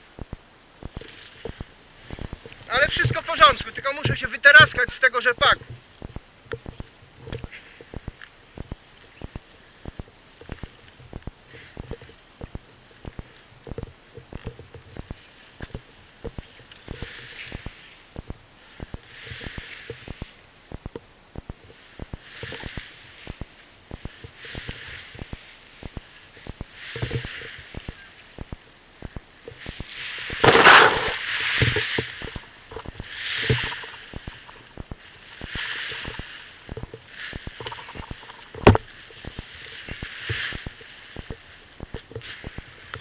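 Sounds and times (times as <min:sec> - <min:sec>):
plants crackling: 0:29.9 - 0:34.6.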